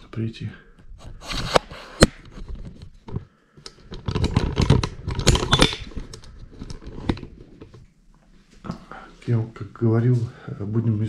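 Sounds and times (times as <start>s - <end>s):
camera handling clicks and rustles: 1.2s - 7.9s.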